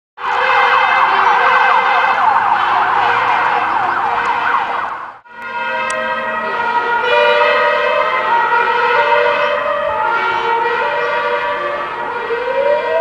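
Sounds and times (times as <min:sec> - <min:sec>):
fire engine siren: 0:00.2 - 0:13.0.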